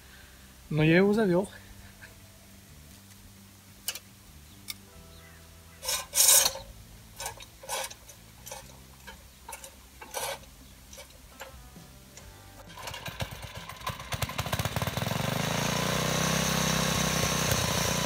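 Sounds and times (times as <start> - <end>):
starter cord rasping: 5.8 - 11.6, 12.6 - 15.9.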